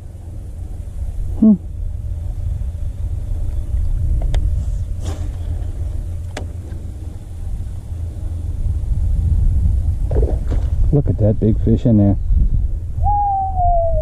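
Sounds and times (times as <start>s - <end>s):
steady low rumble: 0.0s - 14.0s
short falling pitched sound: 13.0s - 14.0s.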